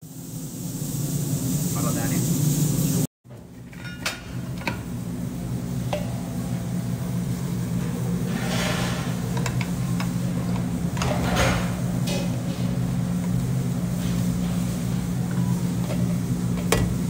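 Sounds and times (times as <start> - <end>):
low machine hum: 0.1 - 17.0
metal spoon scraping in a pot: 8.3 - 9.6.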